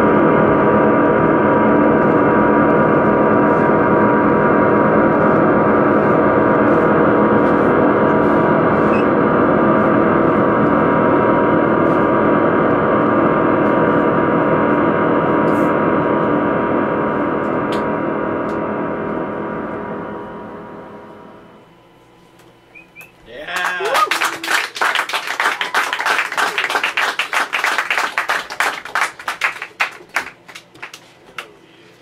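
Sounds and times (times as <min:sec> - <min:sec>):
electronic noise drone: 0:00.0 - 0:23.7.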